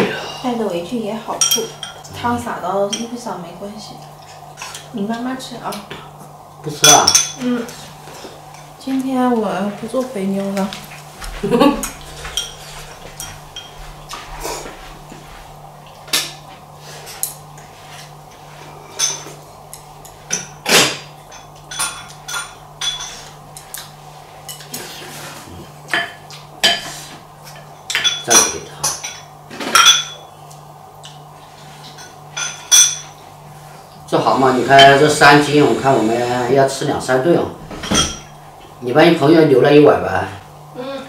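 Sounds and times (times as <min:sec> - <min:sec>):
chopsticks clinking on bowl: 0:11.8 - 0:14.2.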